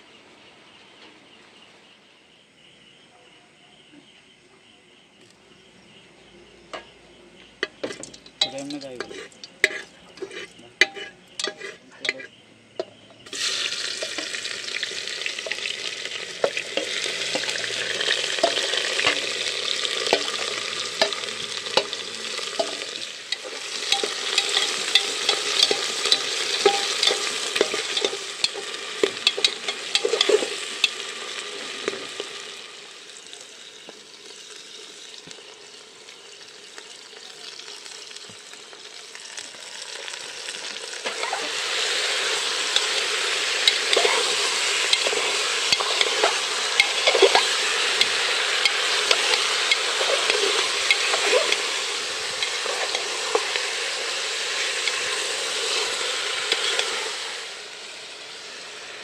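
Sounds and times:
onions sizzling in oil: 4.9 - 59.0
hot oil popping: 6.7 - 59.0
ladle scraping a pot: 7.6 - 12.4, 20.0 - 31.0, 41.1 - 53.6, 54.7 - 57.0.

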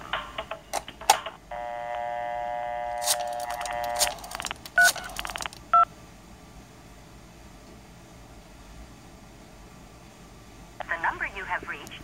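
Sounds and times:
telephone dial tone: 1.6 - 5.6.

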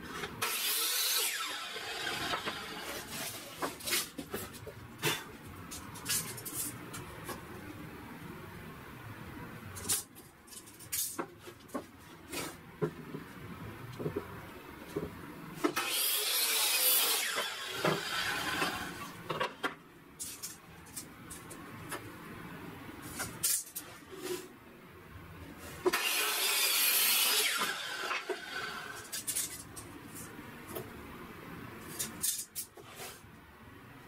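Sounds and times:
miter saw cutting wood: 0.4 - 3.4, 15.8 - 19.2, 25.9 - 29.1.

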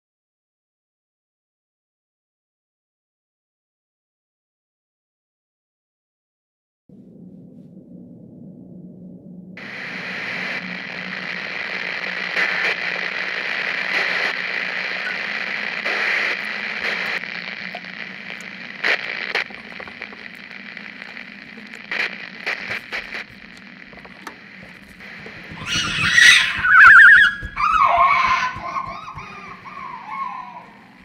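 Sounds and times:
radio static hiss: 9.6 - 31.0
sharp crackles: 9.6 - 31.0.

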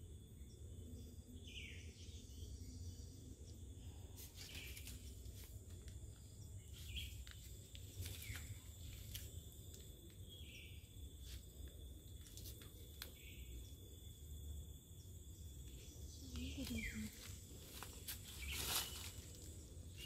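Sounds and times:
high insect drone: 0.0 - 20.0.

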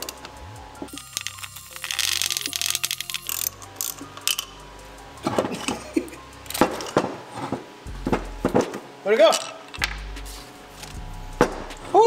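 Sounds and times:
ratchet wrench clicking: 0.0 - 4.6.

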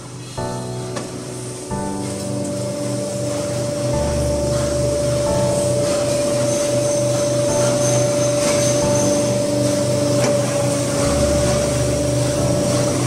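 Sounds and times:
hydraulic pump whine: 0.0 - 13.0
low motor hum: 0.0 - 13.0.

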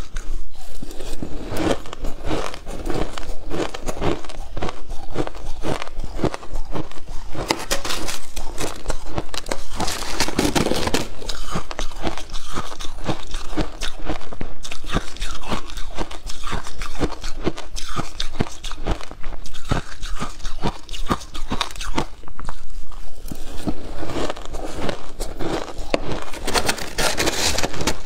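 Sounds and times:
shaved ice being chewed: 0.0 - 28.0
metal spoon scraping ice: 0.5 - 14.0, 23.2 - 28.0.

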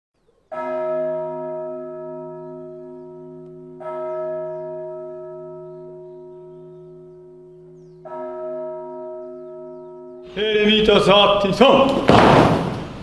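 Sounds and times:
large bell ringing: 0.5 - 11.9.

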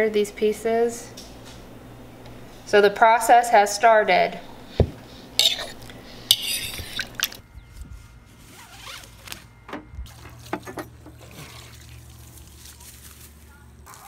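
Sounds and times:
low steady hum: 0.0 - 14.0
fork scraping in a bowl: 5.4 - 7.4.

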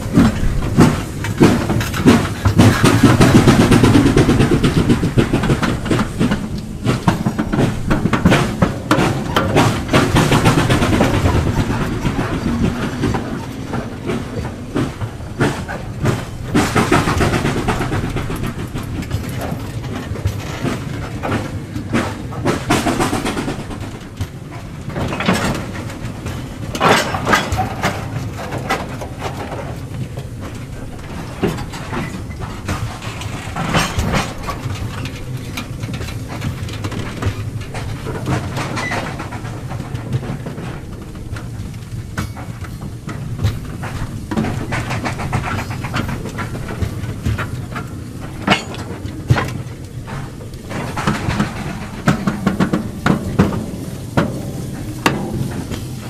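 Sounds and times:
train rumbling past: 0.0 - 56.0
wagons clanking: 0.0 - 56.0
wheels clicking over rail joints: 0.0 - 56.0.

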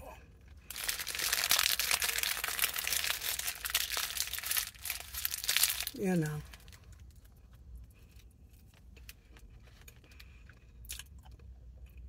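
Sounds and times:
paper wrapper crinkling: 0.7 - 7.3.

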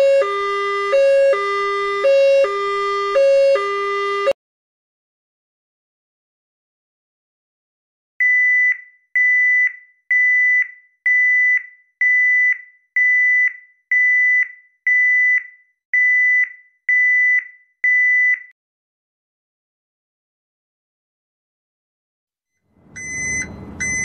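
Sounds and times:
high electronic warning beeps: 23.0 - 24.0.

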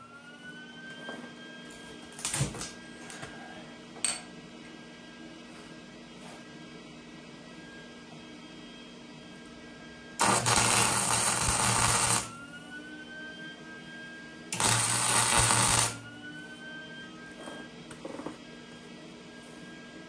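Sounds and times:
arc welder hissing and buzzing: 10.2 - 12.3, 14.5 - 16.1.

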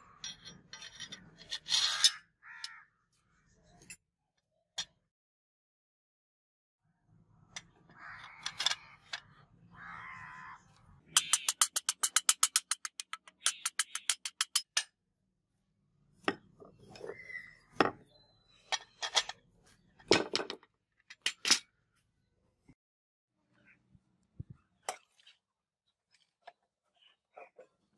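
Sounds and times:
parts knocking on concrete: 11.1 - 14.9.

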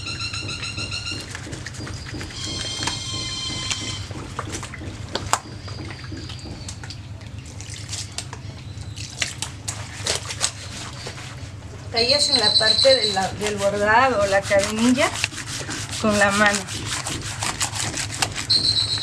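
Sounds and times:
wet cloth worked in water: 0.0 - 19.0
water drips and splashes: 1.2 - 10.5
high whistling tone: 12.0 - 13.4, 18.5 - 19.0.

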